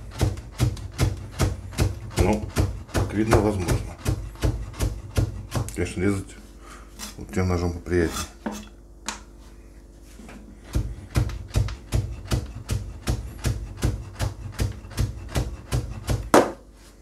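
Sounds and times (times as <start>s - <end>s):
knife chopping on cutting board: 0.0s - 5.9s, 10.6s - 16.7s.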